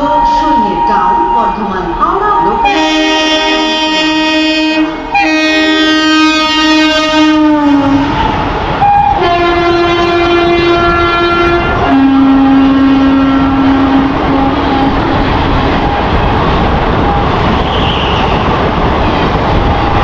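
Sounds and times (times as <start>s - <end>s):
passing train rumble: 0.0s - 20.0s
train horn blasts: 2.6s - 16.0s.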